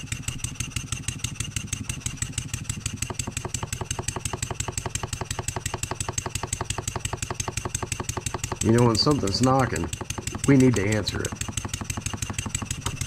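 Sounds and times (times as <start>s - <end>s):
engine knocking: 0.0s - 13.0s
model steam engine exhaust beat: 0.0s - 13.0s.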